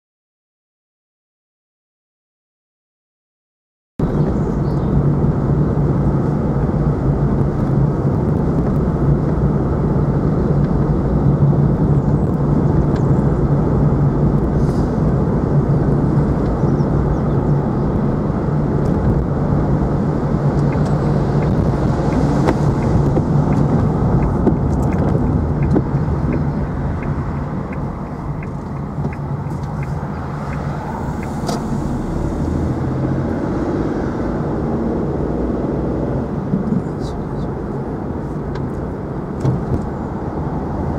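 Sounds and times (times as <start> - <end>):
constant low hum: 4.0 - 33.2
car engine and tyre noise: 4.0 - 40.9.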